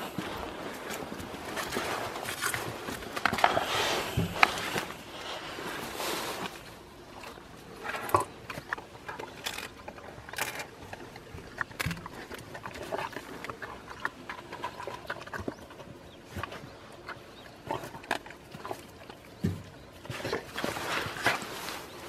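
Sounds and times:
footsteps on dry straw: 0.0s - 7.5s
dog eating crunchy kibble: 0.0s - 22.0s.

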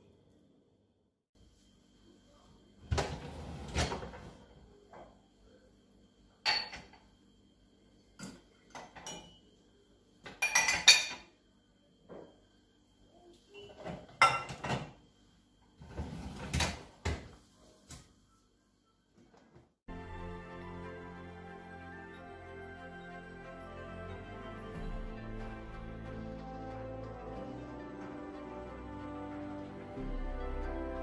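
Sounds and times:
dishes clattering in dishwasher racks: 10.3s - 11.3s, 13.6s - 15.0s.

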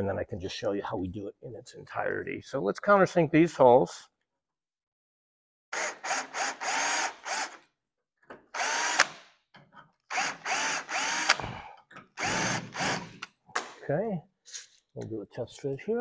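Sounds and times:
cordless drill cutting metal: 5.7s - 7.6s, 8.5s - 9.1s, 10.1s - 11.5s, 12.2s - 13.2s.

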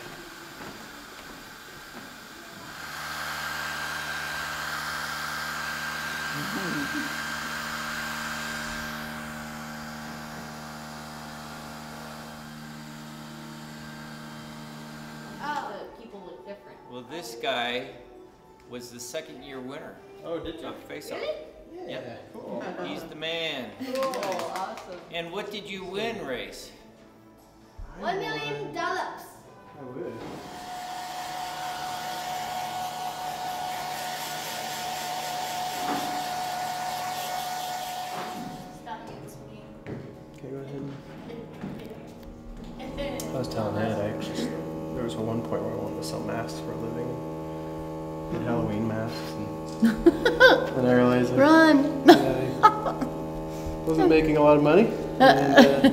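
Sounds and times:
hair dryer blowing: 0.0s - 15.8s, 30.1s - 39.2s, 42.3s - 55.9s.

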